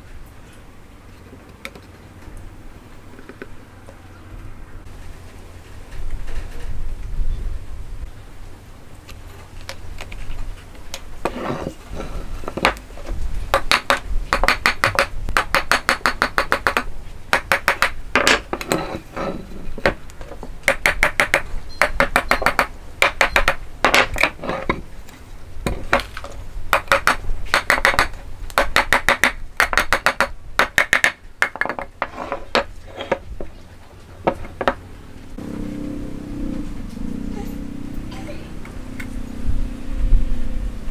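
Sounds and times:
hammer tapping on wood: 0:13.5 - 0:18.8, 0:20.6 - 0:24.3, 0:26.7 - 0:32.6.

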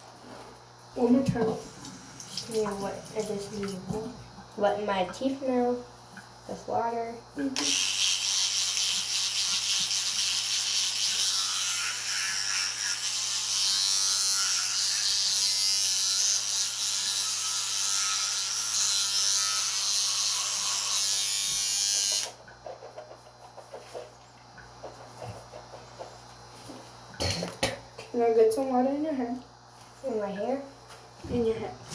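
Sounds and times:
electric toothbrush running: 0:00.9 - 0:05.9, 0:06.5 - 0:22.4.

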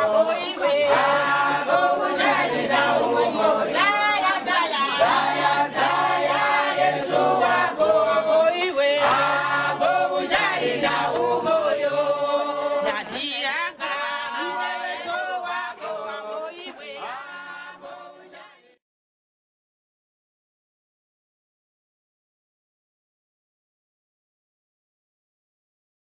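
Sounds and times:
church choir singing: 0:00.0 - 0:18.8.

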